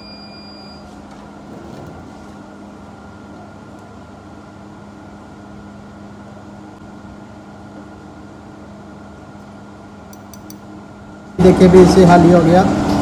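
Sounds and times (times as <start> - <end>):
machine humming: 0.0 - 13.0.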